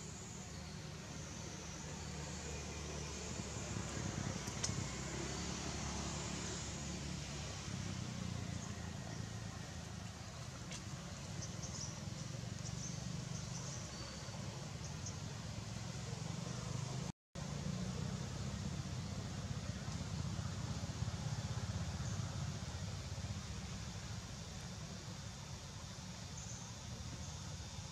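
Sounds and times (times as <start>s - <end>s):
faint click: 4.4s - 4.8s.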